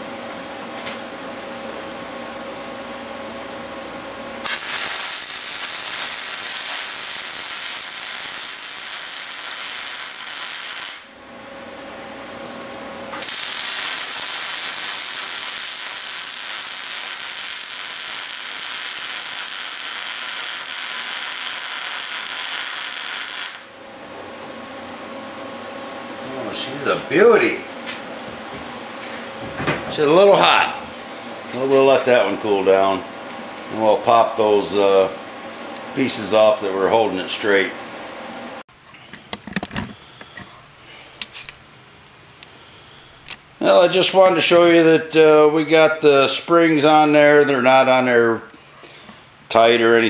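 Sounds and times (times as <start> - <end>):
welding arc hissing: 4.4 - 12.4, 13.1 - 25.0.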